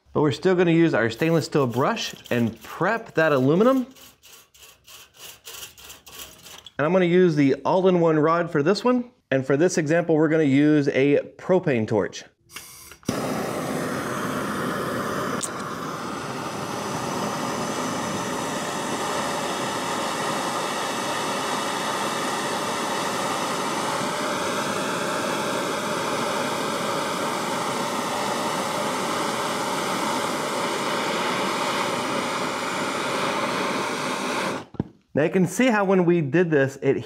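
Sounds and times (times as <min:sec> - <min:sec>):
propane torch hissing: 0:01.0 - 0:04.2, 0:13.1 - 0:34.8.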